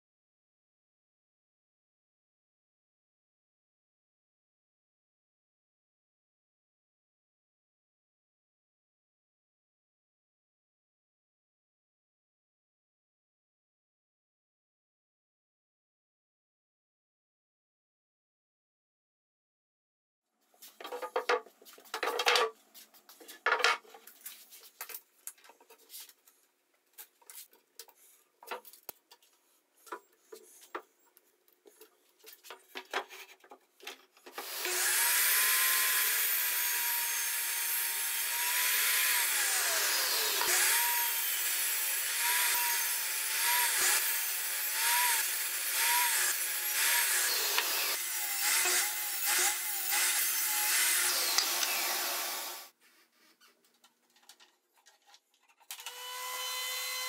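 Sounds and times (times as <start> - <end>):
miter saw cutting wood: 34.3 - 52.7, 55.7 - 57.0.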